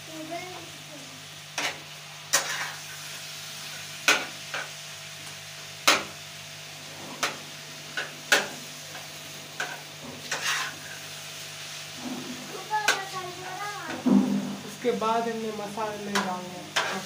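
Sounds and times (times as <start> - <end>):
food sizzling: 0.0 - 17.0
metal spatula clacking on griddle: 4.0 - 4.7, 5.8 - 6.2, 8.0 - 8.6, 9.6 - 10.7, 16.1 - 17.0.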